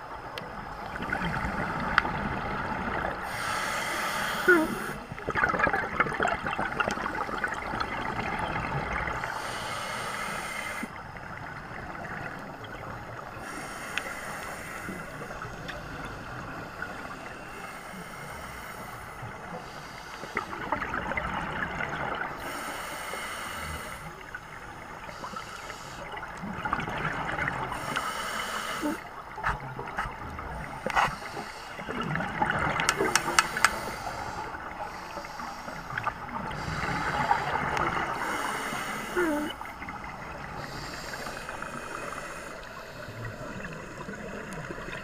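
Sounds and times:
diver breathing through regulator: 3.2s - 5.0s, 9.2s - 11.0s, 13.4s - 20.6s, 22.4s - 24.2s, 27.7s - 32.0s, 32.9s - 39.6s, 40.5s - 44.2s
gurgling exhaust bubbles: 5.2s - 9.2s.

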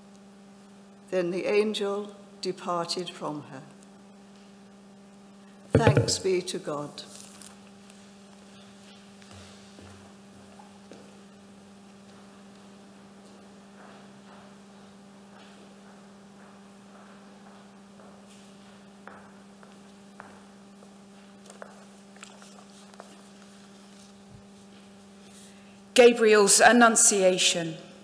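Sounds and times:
low electrical hum: 0.0s - 28.0s
faint knocks: 5.8s - 6.2s.

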